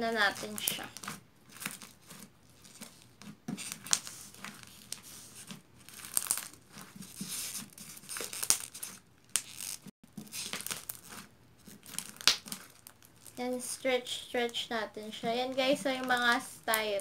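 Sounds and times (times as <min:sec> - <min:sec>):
slime with styrofoam crunching: 0:00.0 - 0:17.0.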